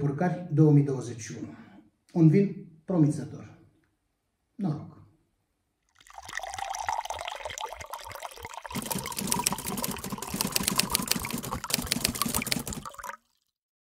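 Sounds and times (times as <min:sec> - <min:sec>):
wine pouring into glass: 0:05.9 - 0:13.5.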